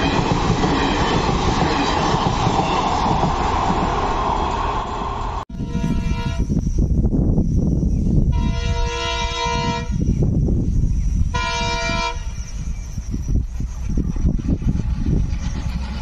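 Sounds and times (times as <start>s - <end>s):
locomotive horn blasts: 5.4s - 6.5s, 8.3s - 10.0s, 11.3s - 12.4s.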